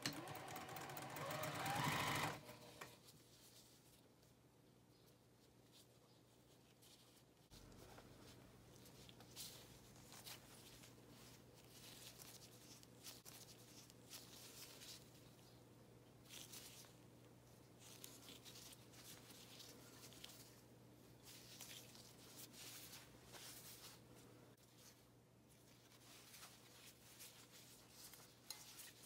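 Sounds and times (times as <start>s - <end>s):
fabric rustling: 5.4s - 15.6s, 16.2s - 29.0s.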